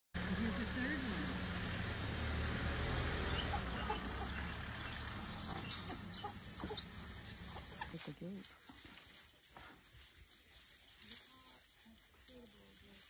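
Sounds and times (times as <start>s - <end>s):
wild dogs chirping: 1.3s - 9.0s.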